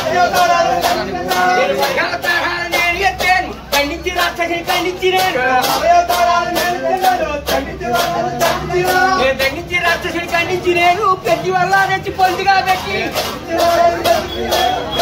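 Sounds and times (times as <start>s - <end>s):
men singing together: 0.0s - 15.0s
brass hand cymbals clashing: 13.1s - 15.0s.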